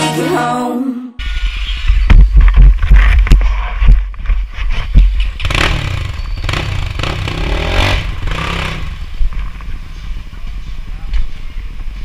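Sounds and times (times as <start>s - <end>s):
dirt bike engine revving: 5.3s - 9.3s.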